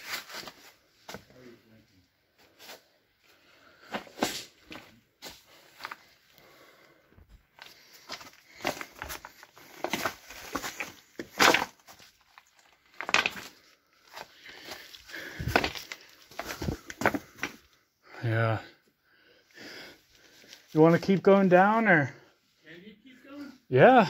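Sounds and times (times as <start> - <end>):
footsteps on loose rock: 7.6 - 17.6.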